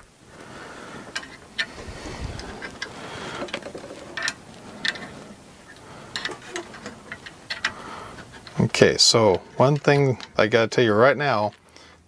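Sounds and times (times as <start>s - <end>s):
low handling noise: 0.0s - 11.6s
metal parts clicking and tapping: 2.4s - 10.5s.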